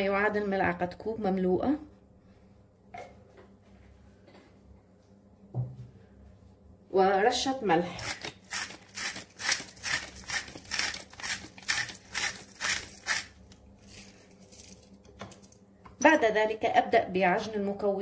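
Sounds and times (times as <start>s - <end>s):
salt shaker rasping: 8.0s - 15.5s.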